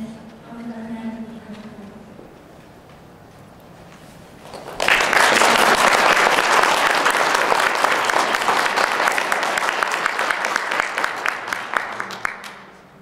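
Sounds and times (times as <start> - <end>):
audience applauding: 4.4 - 13.0.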